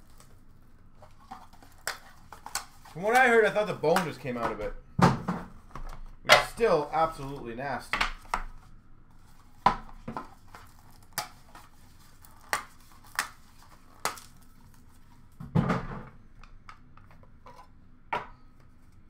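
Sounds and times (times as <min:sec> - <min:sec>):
card packs rustling: 0:00.0 - 0:04.7, 0:05.6 - 0:15.4.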